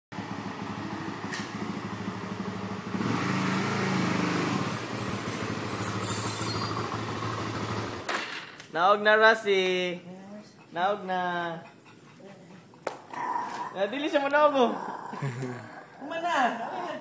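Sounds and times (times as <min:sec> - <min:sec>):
atv engine revving: 0:00.2 - 0:08.1.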